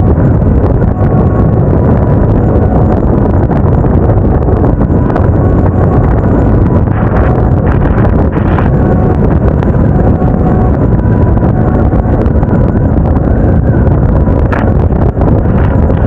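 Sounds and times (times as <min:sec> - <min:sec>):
motorcycle running: 0:00.0 - 0:16.0
wind buffeting microphone: 0:00.0 - 0:16.0.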